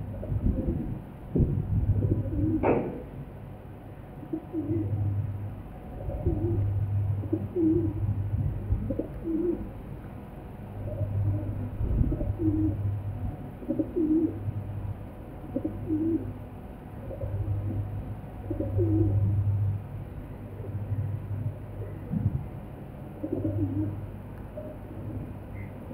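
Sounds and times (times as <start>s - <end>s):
low hum: 0.0s - 25.9s
pigeons cooing: 2.0s - 3.0s, 4.2s - 5.0s, 6.0s - 9.8s, 10.8s - 13.0s, 13.6s - 14.5s, 15.4s - 16.3s, 17.0s - 19.5s, 23.1s - 25.7s.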